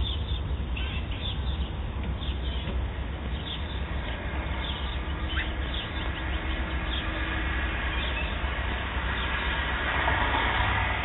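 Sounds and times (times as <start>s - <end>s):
bird chirps: 0.0s - 7.2s, 7.9s - 8.4s
low street rumble: 0.0s - 11.0s.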